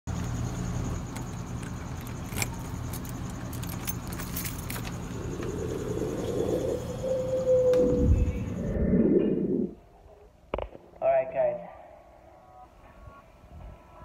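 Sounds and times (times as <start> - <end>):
low steady rumble: 0.4 - 10.3
keys jangling: 1.2 - 5.2.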